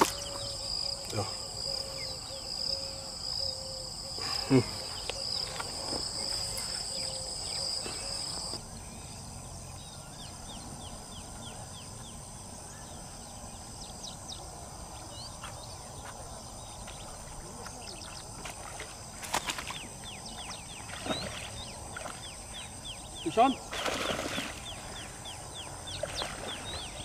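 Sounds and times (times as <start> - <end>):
insects droning: 0.0 - 27.0.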